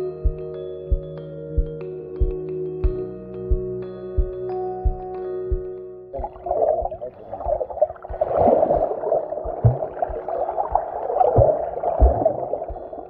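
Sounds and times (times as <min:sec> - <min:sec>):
low underwater thuds: 0:02.2 - 0:13.0
muffled underwater bubbling water: 0:06.2 - 0:13.0.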